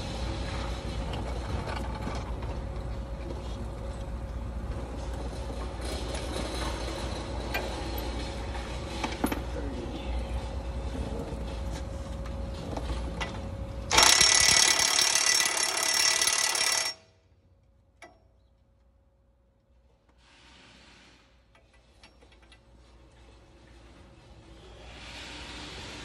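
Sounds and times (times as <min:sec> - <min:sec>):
impact wrench hammering: 0:13.9 - 0:17.0.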